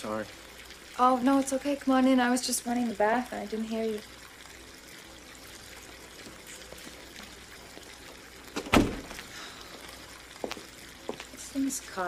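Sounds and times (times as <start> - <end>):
bath tap running water: 0.0 - 12.0
loud thump: 8.6 - 9.2.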